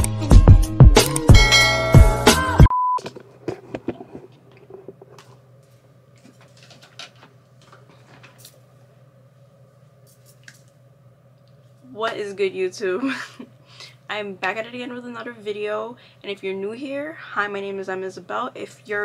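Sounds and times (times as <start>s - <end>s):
hip-hop intro music: 0.0s - 2.7s.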